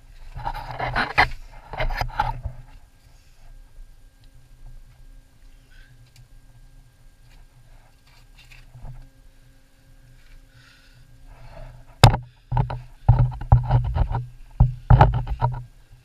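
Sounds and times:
knocks and scrapes on rock: 0.2 - 2.7, 11.4 - 15.7.

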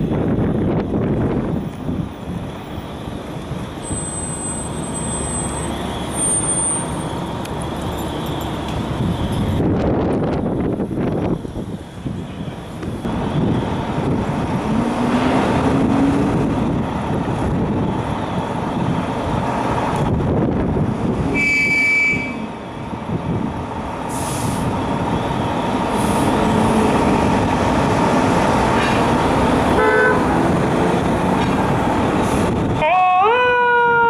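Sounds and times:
diesel engines running: 0.0 - 33.0
city street rumble: 0.0 - 34.0
horn blast: 21.3 - 22.6, 29.7 - 30.3
air hissing: 24.1 - 24.7.

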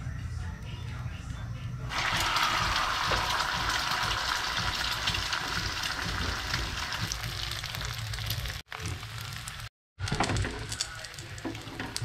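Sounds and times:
egg sizzling in oil: 1.9 - 9.7.

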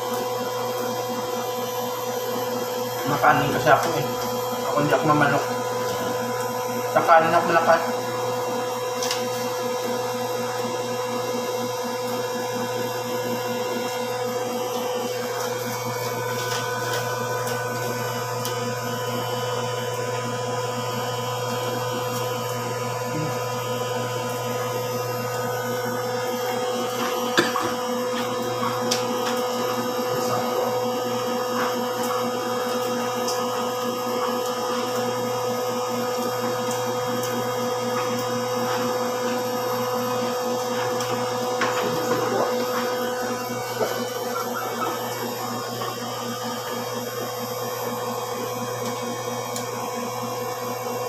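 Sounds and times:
motor hum: 0.0 - 51.0.

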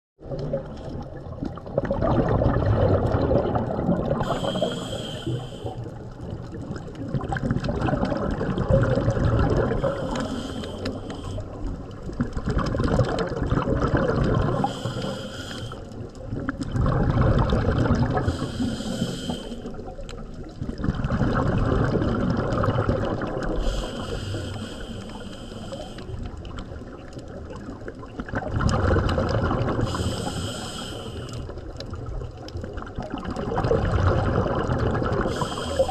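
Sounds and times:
exhaled bubbles gushing: 0.2 - 35.9
regulator inhalation hiss: 4.2 - 6.0, 9.8 - 11.6, 14.6 - 15.9, 18.2 - 19.8, 23.6 - 26.2, 29.8 - 31.5, 35.3 - 35.9.

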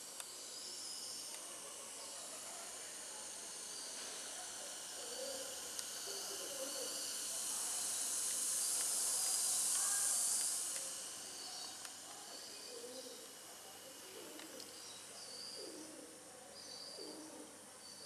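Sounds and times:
soft even hiss: 2.8 - 15.7
faint bird calls: 14.0 - 18.0.

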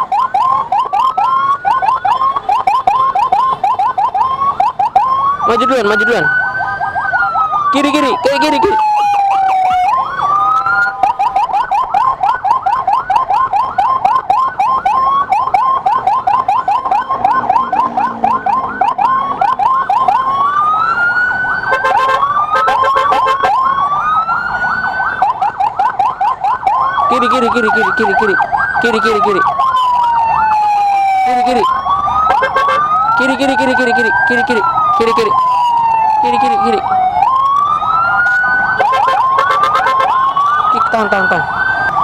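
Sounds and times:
electronic siren yelping and wailing: 0.0 - 42.0.

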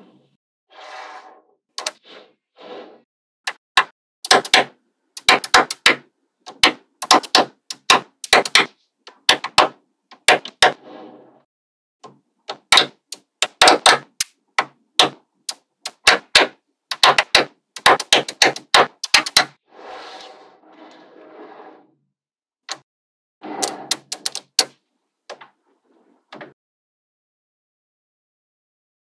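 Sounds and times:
magnetic balls clicking together: 4.2 - 10.6, 12.4 - 19.6, 23.9 - 25.4.

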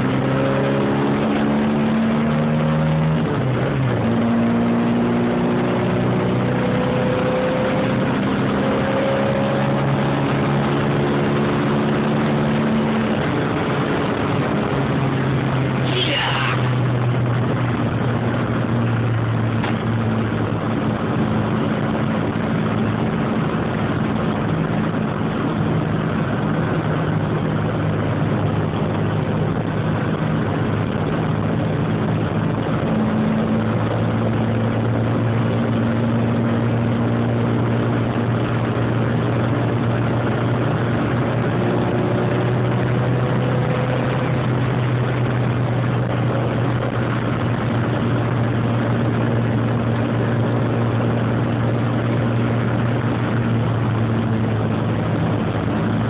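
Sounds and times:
car engine droning: 0.0 - 56.0
tyre and wind noise: 0.0 - 56.0.

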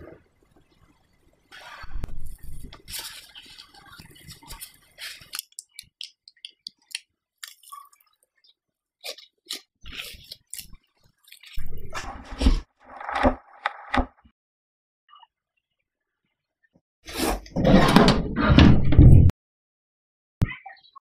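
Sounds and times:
hands squishing sticky dough: 1.6 - 11.9
cling film crinkling: 1.6 - 13.9.

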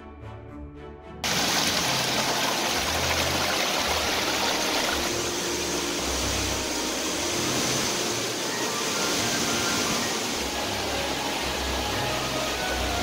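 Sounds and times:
stream rushing over rocks: 1.2 - 13.0.

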